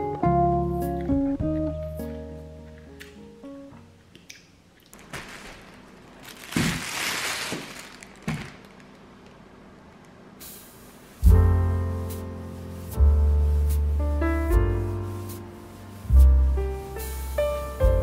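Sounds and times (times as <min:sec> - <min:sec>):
plastic bag rustling: 0:04.8 - 0:09.4.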